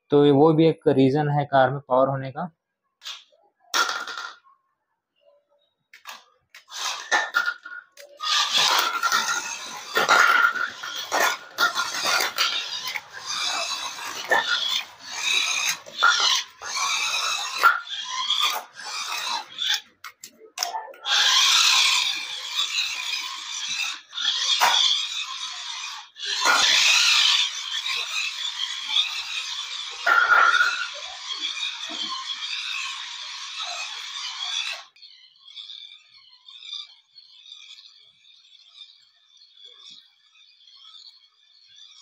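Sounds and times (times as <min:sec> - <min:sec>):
toy car motor whining: 0:06.0 - 0:42.0.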